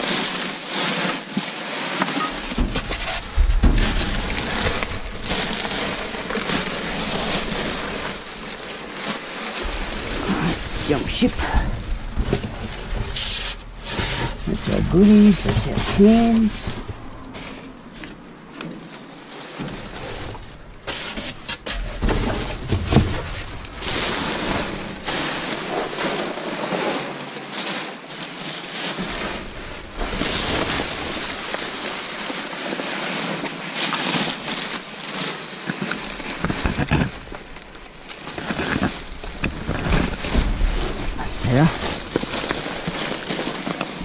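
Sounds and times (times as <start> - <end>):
plastic bags crinkling: 0.0 - 44.0
items knocking: 2.0 - 26.6, 28.9 - 44.0.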